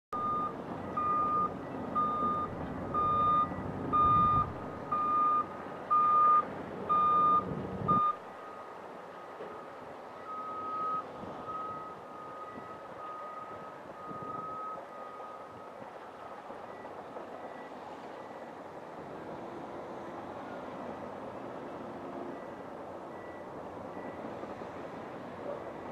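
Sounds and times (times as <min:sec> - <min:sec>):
backup alarm beeping: 0:00.1 - 0:08.2
diesel engine rumble: 0:00.1 - 0:25.9
distant backup alarm: 0:00.2 - 0:15.8.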